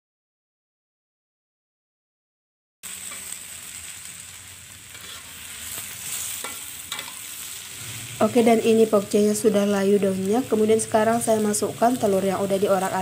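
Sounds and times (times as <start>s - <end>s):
oily sizzle in a wok: 2.8s - 13.0s
spatula clicking on pan: 6.4s - 7.3s.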